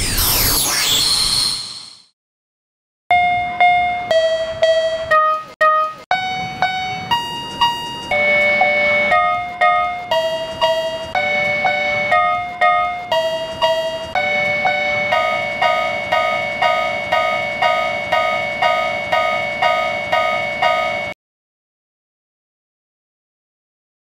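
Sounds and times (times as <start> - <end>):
railroad crossing bells ringing: 3.1 - 21.2.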